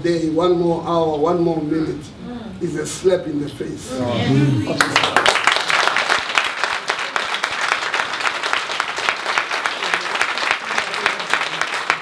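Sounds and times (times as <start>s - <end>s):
small group applauding: 4.8s - 12.0s.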